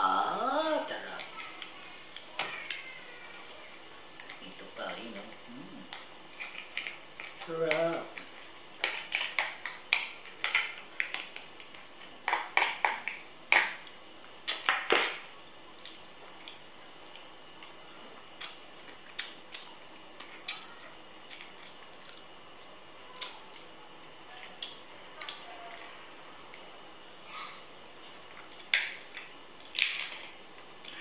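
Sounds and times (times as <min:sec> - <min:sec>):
crab shells cracking: 0:05.9 - 0:23.8, 0:28.3 - 0:31.0.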